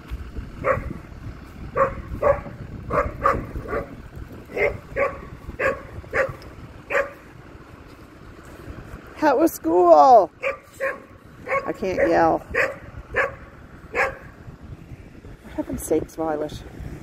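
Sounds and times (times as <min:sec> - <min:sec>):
dog barking: 0:00.6 - 0:00.9, 0:01.8 - 0:07.2, 0:10.4 - 0:14.3.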